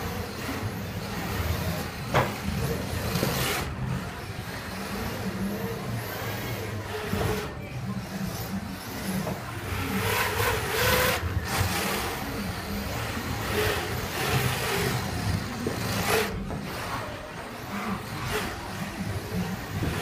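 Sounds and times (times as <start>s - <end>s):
electric motor whirring: 8.8s - 17.1s.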